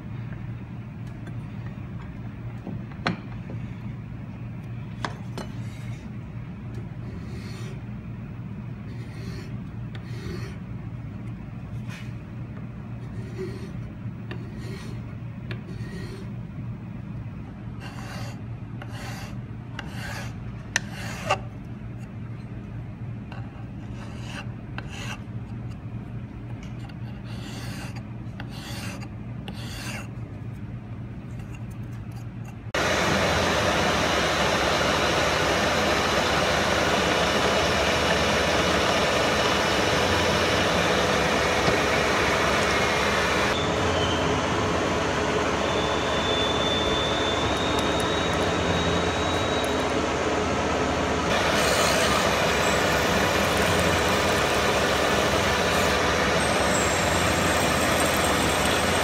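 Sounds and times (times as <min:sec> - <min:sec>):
milling machine cutting metal: 0:32.8 - 0:50.5, 0:51.2 - 0:59.0
faint high whine: 0:32.8 - 0:51.2.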